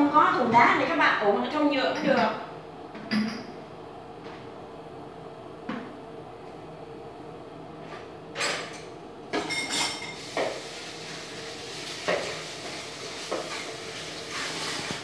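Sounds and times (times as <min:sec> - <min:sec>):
pots and dishes clattering: 0:03.0 - 0:03.6, 0:08.4 - 0:10.7, 0:11.8 - 0:15.0.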